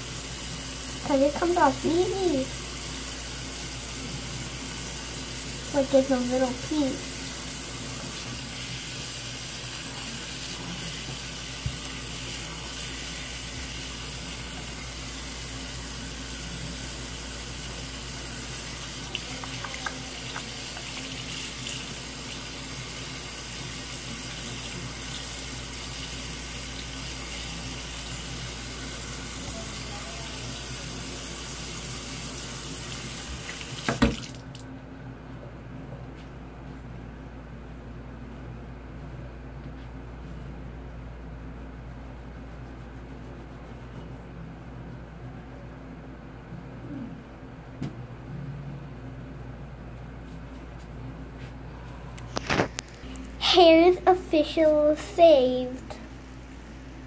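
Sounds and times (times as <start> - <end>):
tap water running: 0.0 - 34.7
hands washing under water: 18.6 - 22.3, 33.3 - 34.6.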